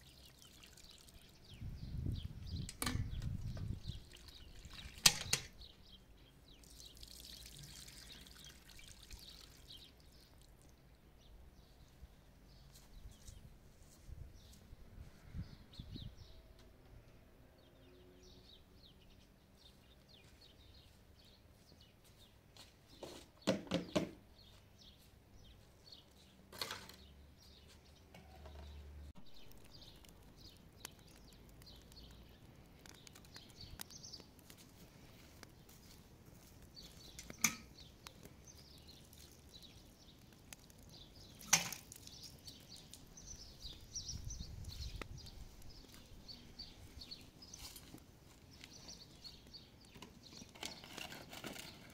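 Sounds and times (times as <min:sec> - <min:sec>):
small birds chirping: 0:00.0 - 0:51.9.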